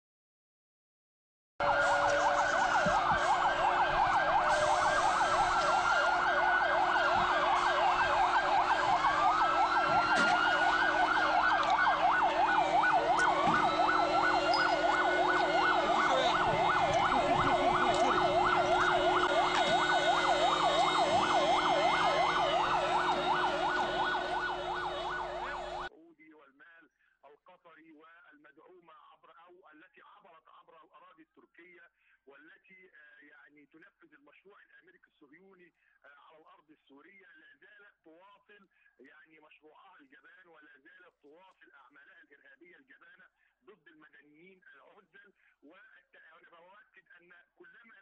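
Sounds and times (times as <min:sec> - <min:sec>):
fast yelping sirens: 0:01.6 - 0:25.9
wailing sirens: 0:01.6 - 0:25.9.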